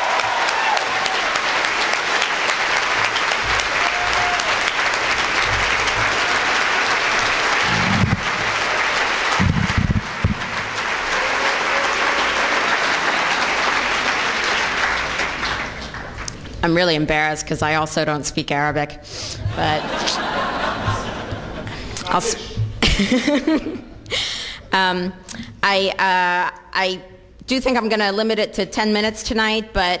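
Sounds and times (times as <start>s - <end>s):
audience applauding: 0.0s - 16.6s
low thumps: 7.1s - 8.7s, 9.3s - 10.8s.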